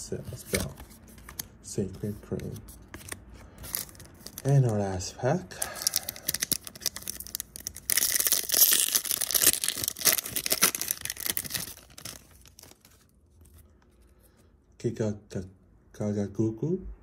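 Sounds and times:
foil wrapper tearing and crinkling: 0:03.7 - 0:04.7, 0:05.6 - 0:13.1.

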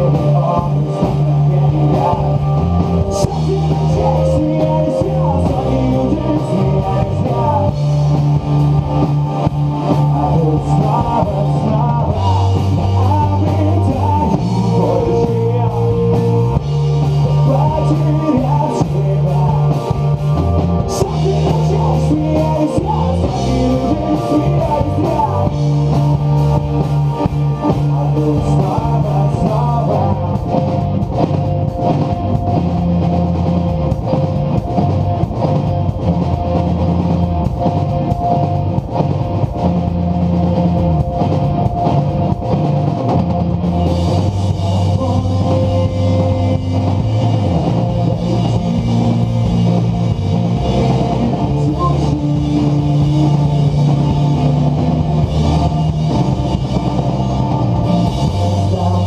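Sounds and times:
rock band playing: 0:00.0 - 0:59.0.

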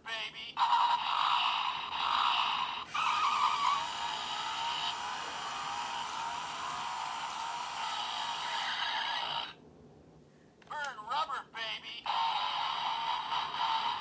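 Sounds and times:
electronic toy motorcycle engine: 0:00.6 - 0:09.6, 0:12.1 - 0:14.0.

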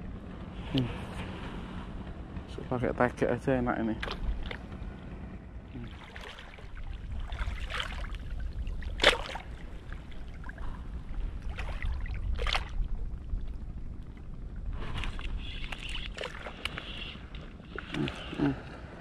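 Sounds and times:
wind rumble on microphone: 0:00.0 - 0:19.0
sea water lapping and splashing: 0:03.9 - 0:05.1, 0:05.7 - 0:19.0.

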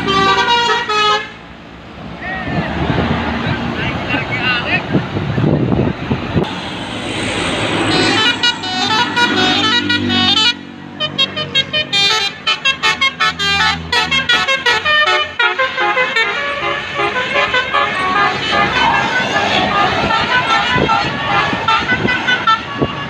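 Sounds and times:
passing bus: 0:00.0 - 0:23.0
musical air horn playing a tune: 0:06.9 - 0:23.0.

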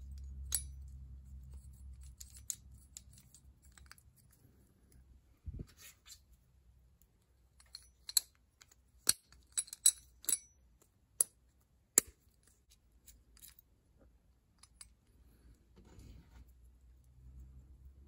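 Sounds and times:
metal parts clicking and clinking: 0:00.0 - 0:05.0, 0:07.5 - 0:11.4, 0:12.0 - 0:13.7, 0:14.5 - 0:15.0.

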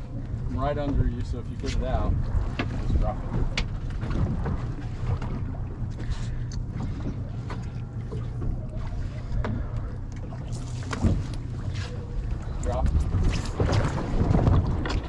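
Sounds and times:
boat engine low rumble: 0:00.0 - 0:15.0.

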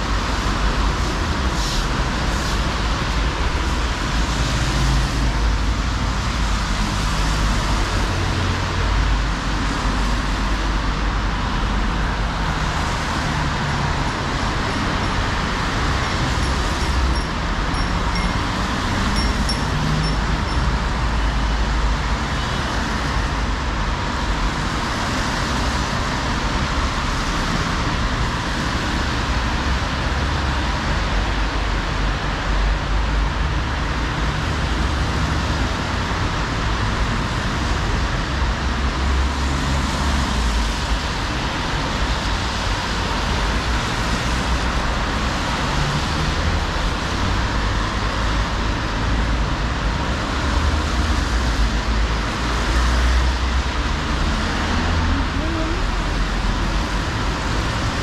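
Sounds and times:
tyres hissing on wet asphalt: 0:00.0 - 0:17.1.

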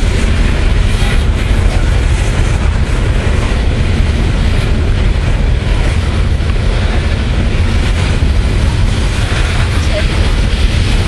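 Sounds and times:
freight train wheels rumbling: 0:00.0 - 0:11.0.

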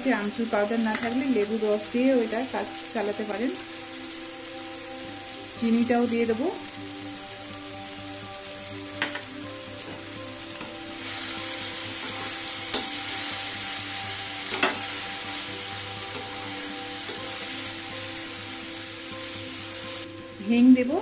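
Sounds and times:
chutney sizzling in a pan: 0:00.0 - 0:21.0
spatula stirring in a pan: 0:09.9 - 0:17.6
utensil clicking on pan: 0:12.1 - 0:13.0, 0:14.5 - 0:14.9.

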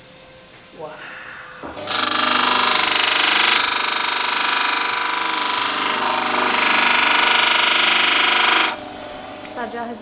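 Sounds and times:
motor hum: 0:01.7 - 0:10.0
abrasive wheel grinding plaster: 0:01.8 - 0:08.8.

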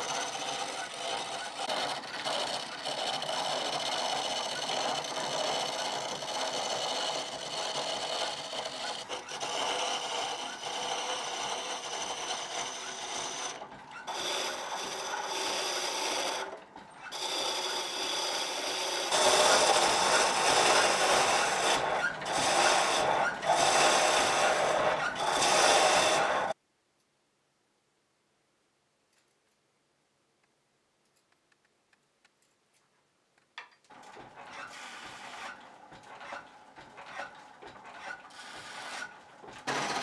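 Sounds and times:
gouge rasping on spinning wood: 0:00.0 - 0:16.5, 0:17.1 - 0:26.5.

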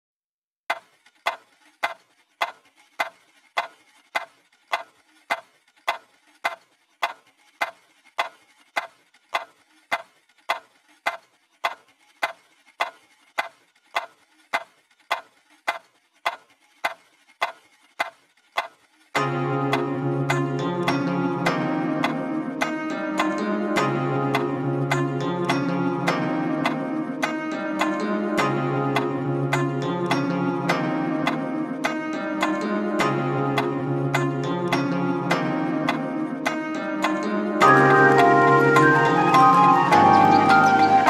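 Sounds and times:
clock ticking: 0:00.7 - 0:18.7.

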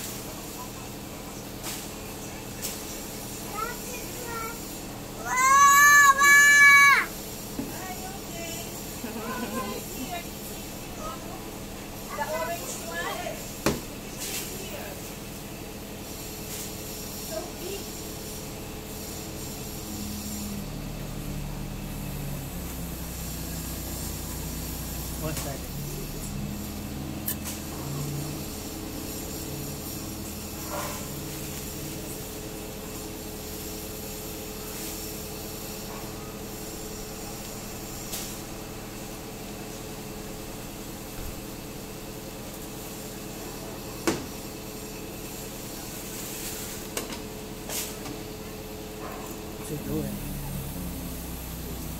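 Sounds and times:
engine humming: 0:17.4 - 0:43.8, 0:45.0 - 0:51.9.

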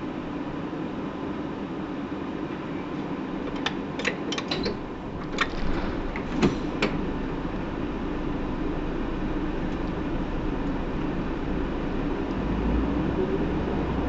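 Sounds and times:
bus engine humming: 0:03.1 - 0:14.0
sharp clicks and rattles: 0:03.5 - 0:07.7.

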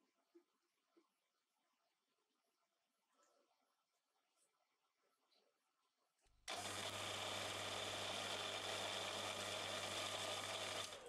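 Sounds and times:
small electric motor whirring: 0:06.5 - 0:11.0.

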